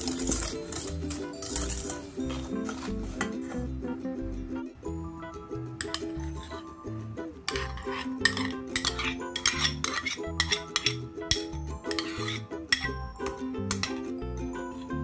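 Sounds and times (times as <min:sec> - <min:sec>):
spoon scraping ceramic bowl: 0:00.0 - 0:03.6, 0:05.8 - 0:06.7, 0:07.4 - 0:14.0
background music: 0:00.0 - 0:15.0.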